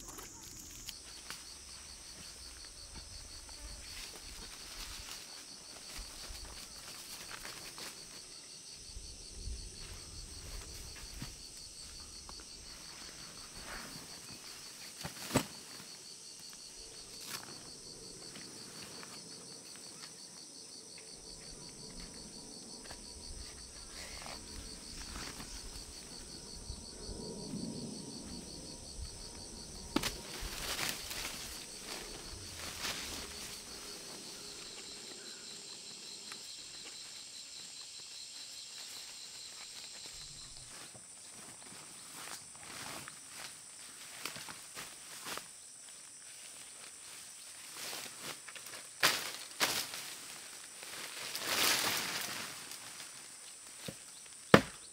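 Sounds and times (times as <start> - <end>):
forest insects chorus: 0.0 - 54.9
snaps and rustles in undergrowth: 14.8 - 15.9, 29.9 - 33.7, 47.7 - 54.1.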